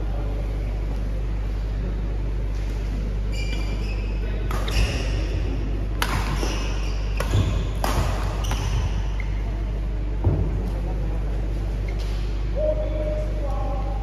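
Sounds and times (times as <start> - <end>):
steady low hum: 0.0 - 14.0
shoe squeaks on court: 3.3 - 5.3, 6.2 - 9.4
racquet hitting shuttlecock: 6.0 - 9.2.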